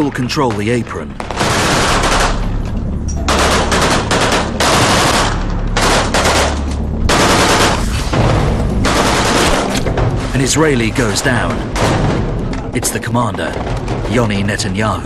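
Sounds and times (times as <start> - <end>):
assault rifle automatic fire: 1.2 - 2.5, 3.3 - 7.8, 8.8 - 9.8.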